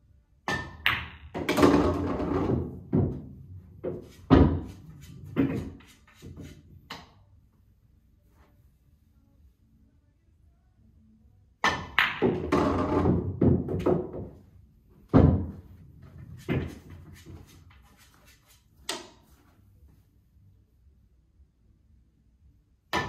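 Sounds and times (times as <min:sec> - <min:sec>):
billiard balls clacking: 0:00.6 - 0:07.2, 0:11.7 - 0:14.4.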